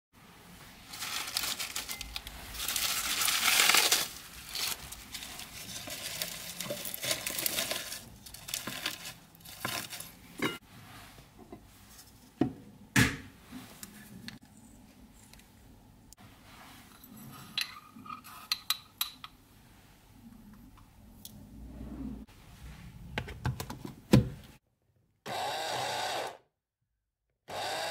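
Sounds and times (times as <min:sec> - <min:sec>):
leaves rustling and crinkling: 0:00.4 - 0:11.1.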